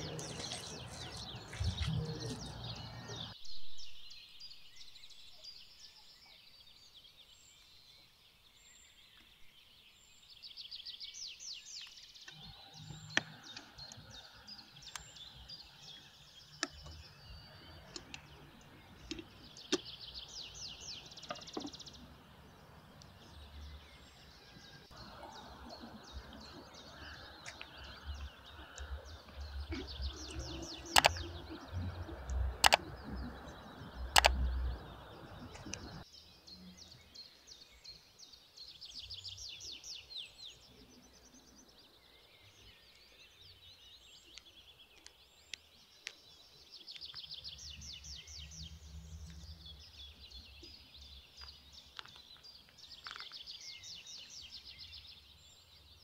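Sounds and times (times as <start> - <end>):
small birds chirping: 0.0 - 56.0
loud sharp clicks: 29.7 - 31.3, 32.3 - 32.9, 34.1 - 34.5.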